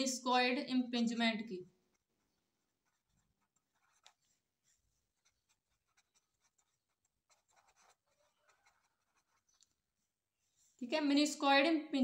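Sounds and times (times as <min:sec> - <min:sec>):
pen scratching on paper: 0:01.8 - 0:10.8.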